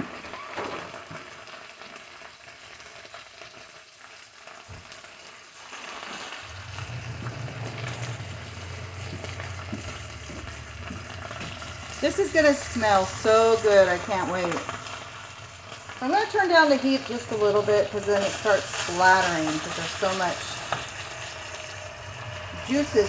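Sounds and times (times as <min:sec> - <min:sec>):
bacon sizzling in a pan: 0:00.0 - 0:23.0
steady low hum: 0:06.5 - 0:23.0.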